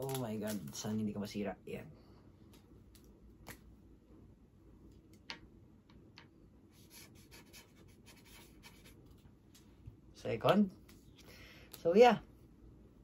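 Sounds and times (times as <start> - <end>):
pen scratching: 6.8 - 9.0.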